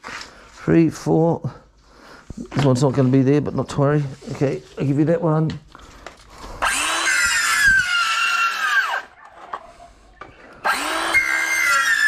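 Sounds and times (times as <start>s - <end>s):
circular saw cutting bamboo: 6.6s - 9.1s, 10.6s - 12.0s.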